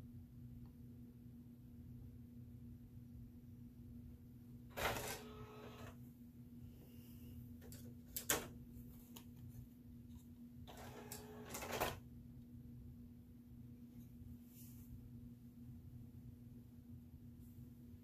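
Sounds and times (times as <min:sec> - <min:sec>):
disc tray motor whirring: 0:04.7 - 0:06.0, 0:10.7 - 0:11.7.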